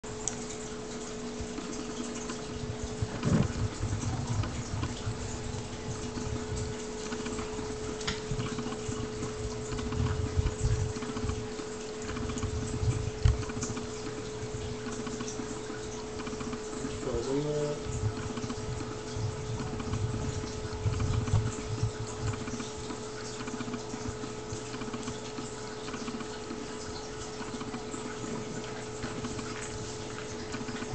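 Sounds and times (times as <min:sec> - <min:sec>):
steady hum: 0:00.0 - 0:30.9
puppies growling and grunting: 0:02.3 - 0:13.7.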